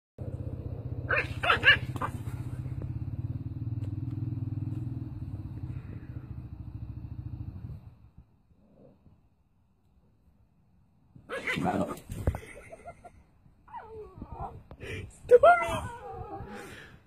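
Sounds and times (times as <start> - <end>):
dog barking: 1.1 - 2.2.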